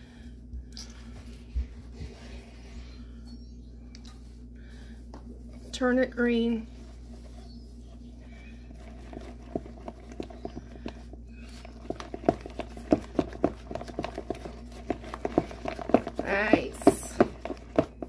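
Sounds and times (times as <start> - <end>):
utensil stirring batter in bowl: 4.2 - 18.0.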